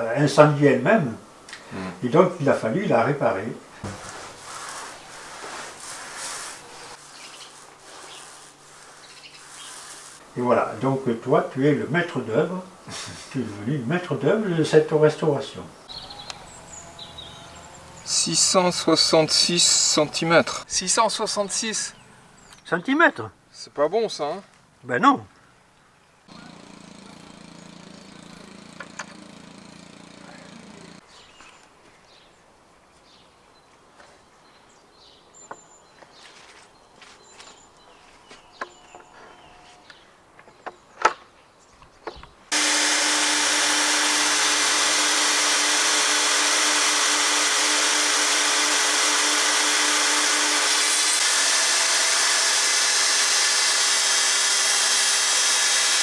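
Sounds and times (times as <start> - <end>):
circular saw cutting wood: 15.8 - 20.5, 26.3 - 31.0, 42.5 - 56.0.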